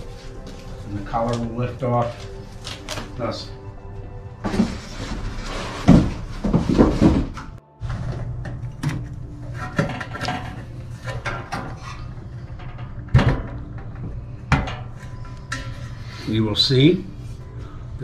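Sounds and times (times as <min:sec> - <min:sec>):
low steady hum: 0:00.0 - 0:18.0
cardboard scraping and rustling: 0:04.4 - 0:08.0.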